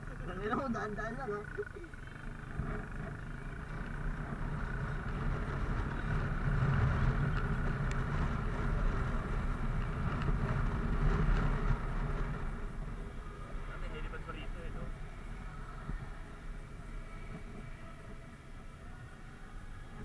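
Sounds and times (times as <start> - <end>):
motorcycle engine running: 0.0 - 20.0
wind and road noise: 0.0 - 20.0.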